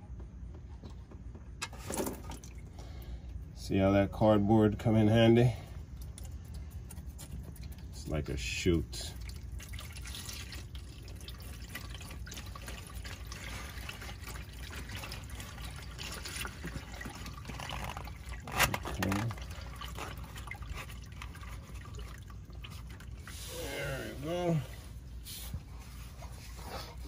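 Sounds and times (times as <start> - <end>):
oil trickling into a pan: 5.3 - 24.8.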